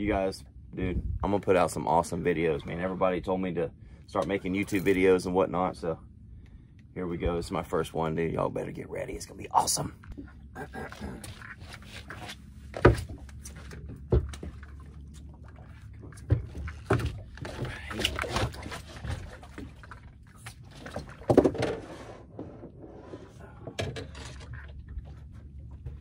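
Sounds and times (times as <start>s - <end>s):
low steady rumble: 0.0s - 26.0s
knocks and thumps on boat: 12.1s - 26.0s.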